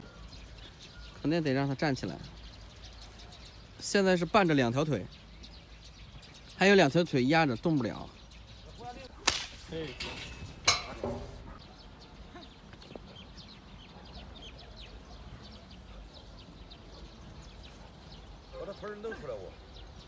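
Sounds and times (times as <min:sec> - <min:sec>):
sharp cracks: 0:09.1 - 0:10.9.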